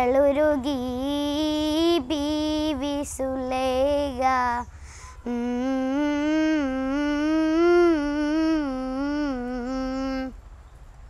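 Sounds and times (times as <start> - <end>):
girl singing: 0.0 - 10.4
girl humming: 4.1 - 10.4.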